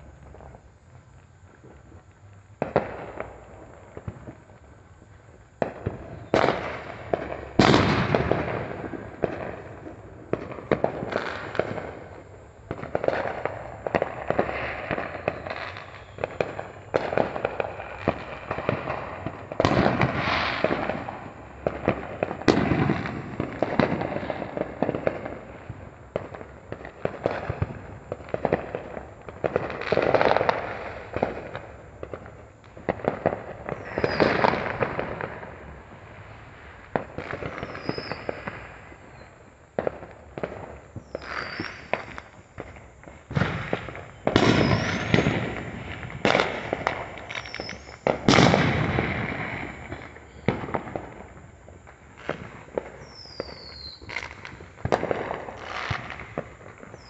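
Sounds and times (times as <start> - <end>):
firecrackers crackling: 0.0 - 57.0
booming firework reports: 5.6 - 25.2, 41.0 - 51.6.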